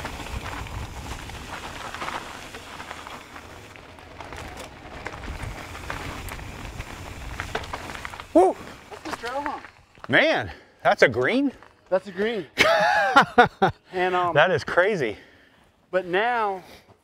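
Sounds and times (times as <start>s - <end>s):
wind rumbling on microphone: 0.0s - 8.4s
bike tyres crunching on dirt: 0.0s - 12.5s.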